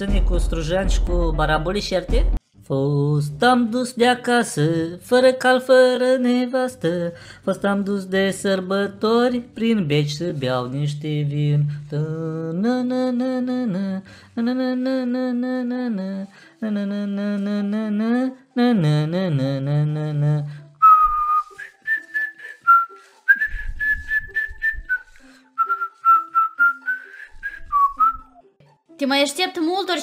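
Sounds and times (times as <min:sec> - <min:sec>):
man singing: 0:00.0 - 0:20.7
person whistling a melody: 0:19.4 - 0:28.5.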